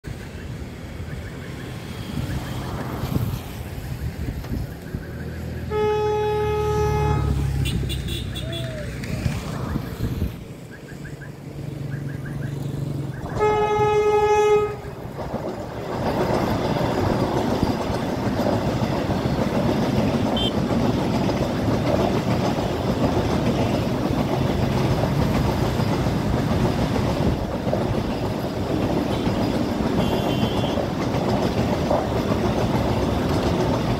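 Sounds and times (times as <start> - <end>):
train rumbling past on rails: 0.0 - 33.9
train horn blast: 5.7 - 8.7, 13.3 - 15.0, 20.4 - 20.6, 29.1 - 30.9.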